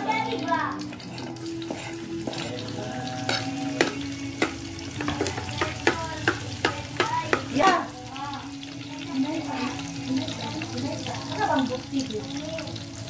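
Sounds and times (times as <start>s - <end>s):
vegetables sizzling in oil: 0.0s - 13.0s
metal spatula tapping and scraping: 1.0s - 2.6s, 3.2s - 7.9s.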